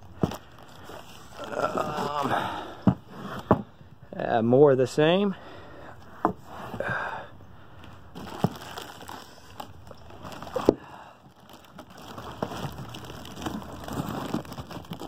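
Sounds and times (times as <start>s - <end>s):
plastic packaging crinkling: 8.2s - 15.0s.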